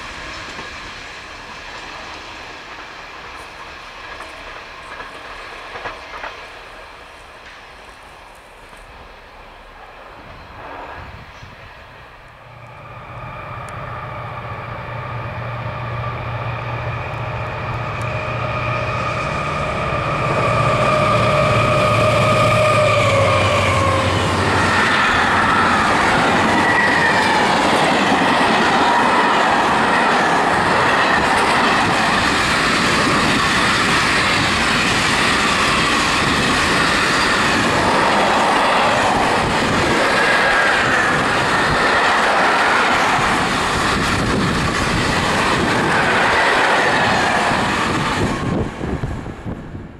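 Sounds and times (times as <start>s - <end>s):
steel wheels clattering on rail: 0.0s - 9.0s, 17.3s - 49.5s
high wheel squeal: 12.8s - 29.2s, 32.3s - 39.0s.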